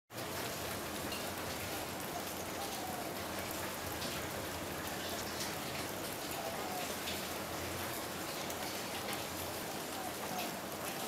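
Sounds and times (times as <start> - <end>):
rain falling: 0.1 - 11.0.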